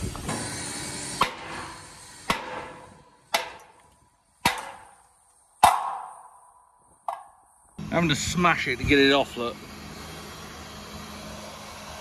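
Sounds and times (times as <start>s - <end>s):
sledgehammer striking steel: 1.2s - 3.8s, 4.4s - 6.5s.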